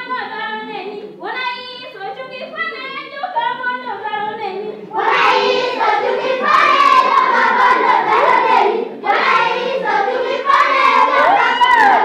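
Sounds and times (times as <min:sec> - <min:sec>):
choir singing in unison: 0:04.9 - 0:12.0.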